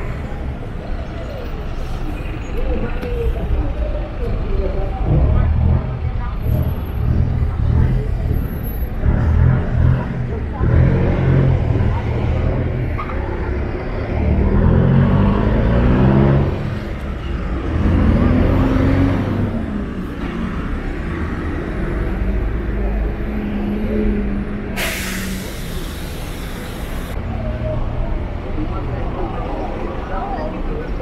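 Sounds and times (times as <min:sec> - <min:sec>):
vehicle engines pulling away: 0:04.9 - 0:27.8
air brake hiss: 0:24.8 - 0:27.1.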